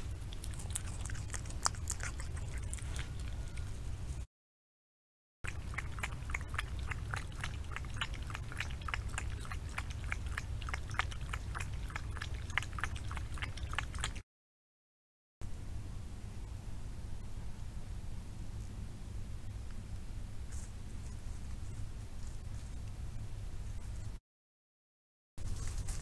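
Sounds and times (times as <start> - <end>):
fox cub crunching food: 0.0 - 4.2, 5.5 - 14.2, 25.4 - 26.0
low steady hum: 0.0 - 4.3, 5.5 - 14.2, 15.4 - 24.2.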